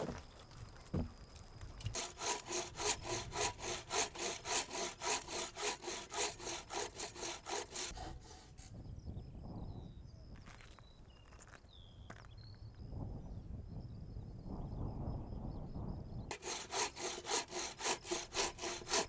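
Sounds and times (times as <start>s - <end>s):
hand saw cutting wood: 1.8s - 8.7s, 16.3s - 19.0s.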